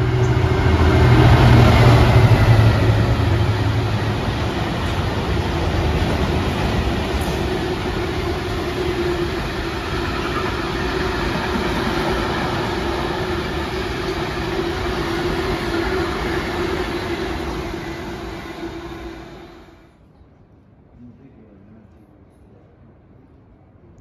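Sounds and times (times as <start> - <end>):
train wheels clattering on rails: 0.0 - 18.8.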